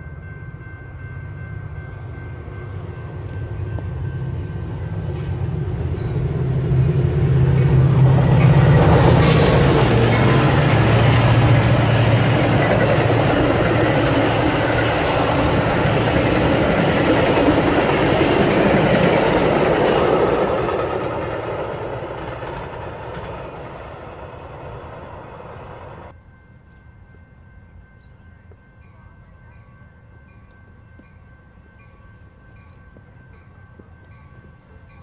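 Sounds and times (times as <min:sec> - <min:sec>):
diesel locomotive hum: 0:00.0 - 0:26.2
train rolling past on tracks: 0:00.0 - 0:35.0.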